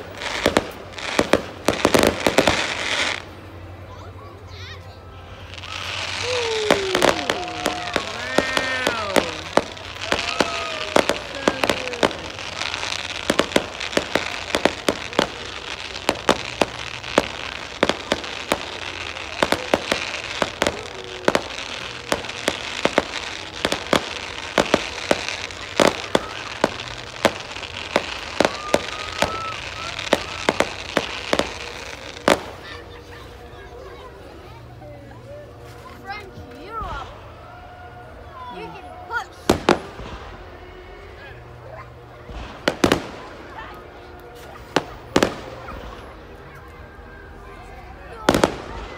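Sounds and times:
firework crackling hiss: 0.0s - 3.9s, 5.2s - 33.5s.

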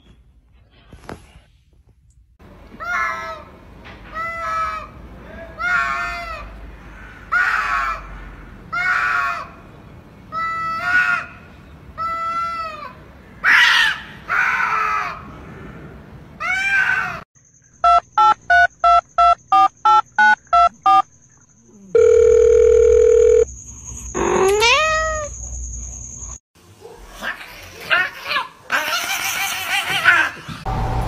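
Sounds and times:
telephone keypad beeps: 17.8s - 21.0s, 22.0s - 23.5s
dial tone: 21.9s - 23.5s
rising call tone: 21.9s - 23.5s
cats yowling: 24.4s - 25.3s, 27.2s - 30.5s.

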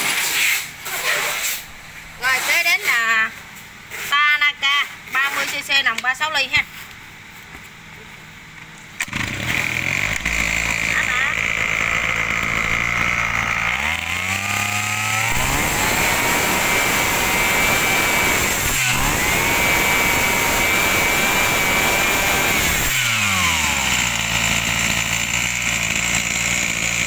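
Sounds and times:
brush cutter engine revving: 9.0s - 27.0s.

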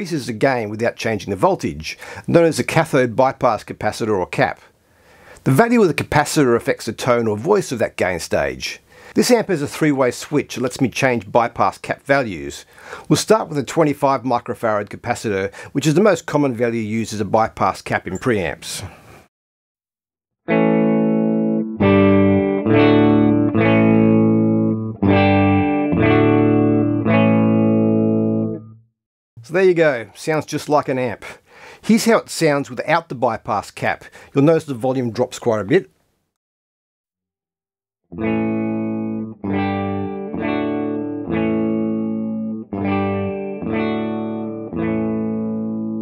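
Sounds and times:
electric guitar chords strummed: 20.5s - 28.8s, 38.1s - 46.0s.

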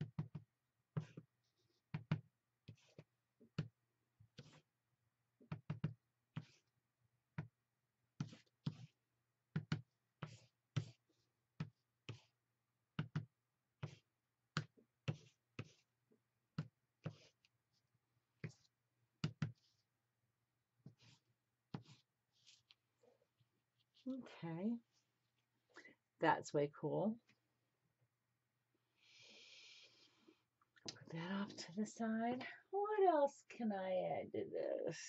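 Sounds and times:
plastic tool tapping on paper: 12.9s - 13.3s.

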